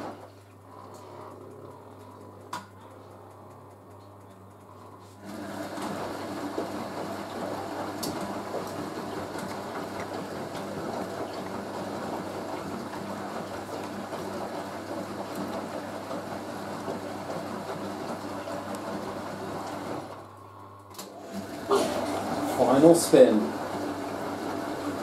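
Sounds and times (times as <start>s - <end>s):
washing machine motor hum: 0.0s - 25.0s
laundry sloshing in drum: 5.2s - 20.3s, 21.1s - 25.0s.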